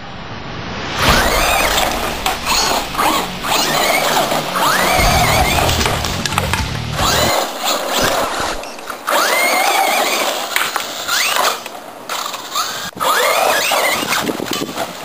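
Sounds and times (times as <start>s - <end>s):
tyres scrabbling through dirt: 1.0s - 15.0s
electric motor whining: 1.1s - 10.4s.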